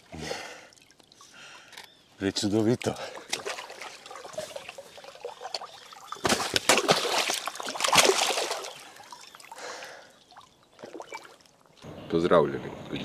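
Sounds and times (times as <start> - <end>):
water trickling and dripping: 0.0 - 11.9
fish splashing in water: 3.0 - 11.8.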